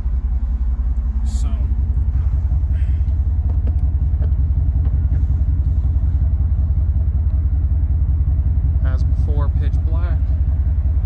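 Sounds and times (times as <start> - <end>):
truck engine idling: 0.0 - 11.0.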